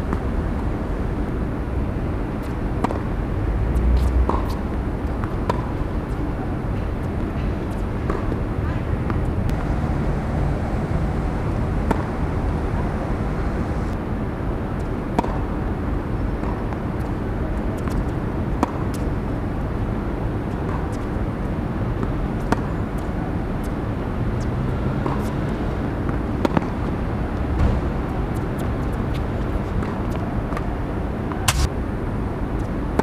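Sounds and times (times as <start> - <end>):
steady background noise: 0.0 - 33.0
tennis balls struck by rackets: 2.4 - 3.2, 4.0 - 9.8, 11.5 - 12.2, 16.4 - 16.8, 17.7 - 19.1, 25.9 - 26.9, 31.3 - 31.7.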